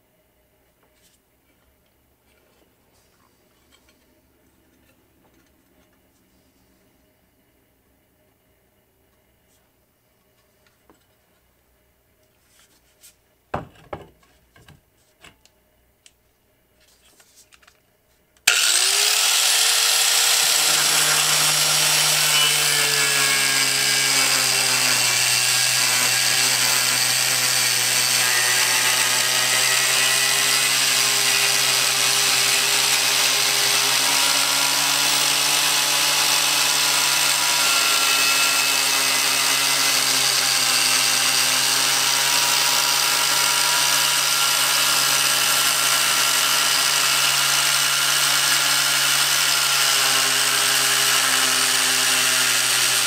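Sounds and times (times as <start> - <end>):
angle grinder cutting steel: 18.5 - 53.0.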